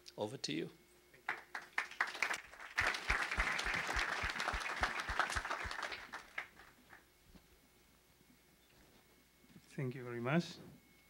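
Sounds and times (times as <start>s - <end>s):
audience applauding: 1.3s - 7.0s.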